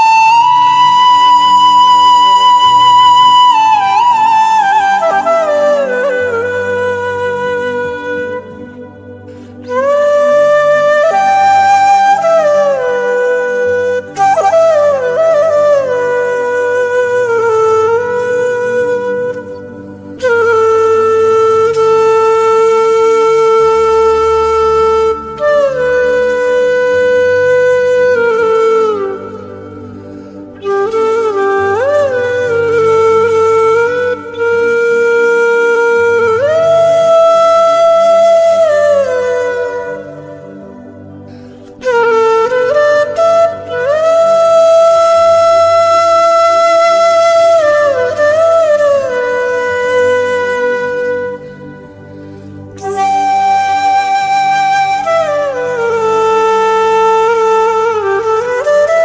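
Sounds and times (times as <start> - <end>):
soft low accompaniment: 0.0 - 59.0
wind instrument sustained notes: 0.0 - 59.0.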